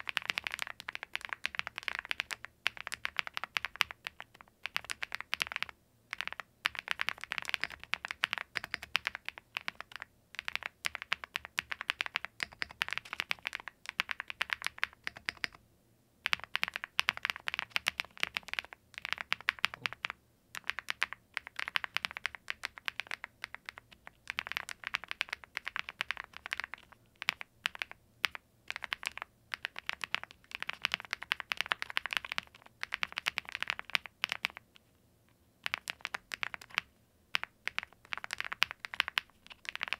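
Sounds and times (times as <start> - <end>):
mechanical keyboard typing: 0.0 - 15.6, 16.2 - 34.8, 35.6 - 39.9.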